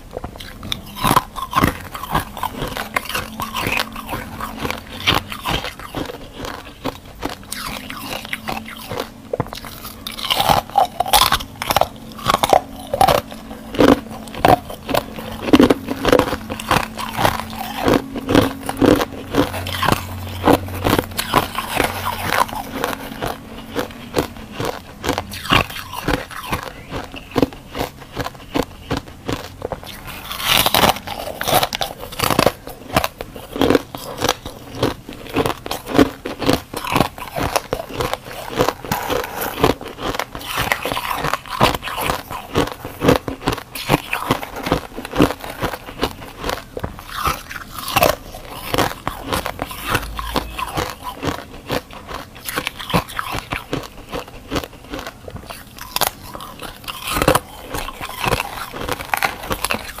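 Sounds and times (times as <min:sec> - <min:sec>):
crunching and chewing frost: 0:00.0 - 1:00.0.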